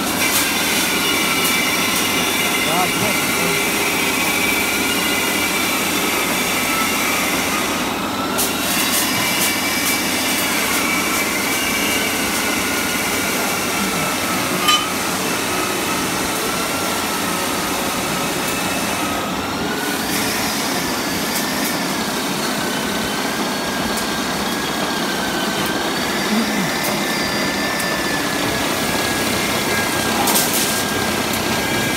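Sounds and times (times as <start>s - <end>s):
rebar cutting machine whine: 0.0s - 31.9s
blade shearing steel clacks: 14.5s - 15.2s.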